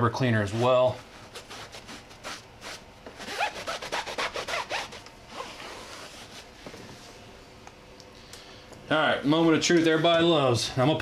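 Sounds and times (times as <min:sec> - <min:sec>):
towel rubbing on tire rubber: 0:00.5 - 0:06.5.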